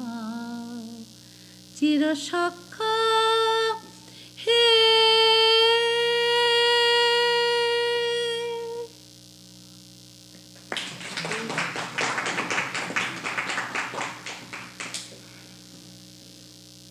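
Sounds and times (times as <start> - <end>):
steady background hum: 0.0 - 16.9
audience applauding: 10.6 - 15.2.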